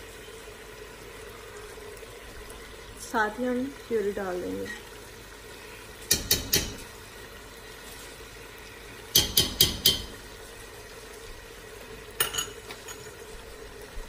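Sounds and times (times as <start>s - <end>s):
meat sizzling in a pot: 0.0s - 14.0s.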